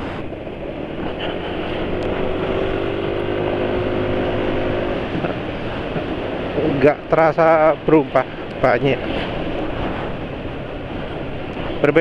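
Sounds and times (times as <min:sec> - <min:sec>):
wind on microphone: 0:00.0 - 0:12.0
scooter engine accelerating: 0:00.2 - 0:06.6.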